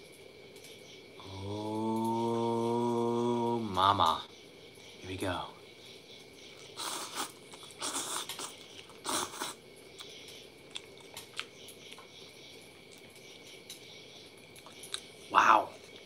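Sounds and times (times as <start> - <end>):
chewing: 6.5 - 16.0
man slurping noodles: 6.8 - 9.6.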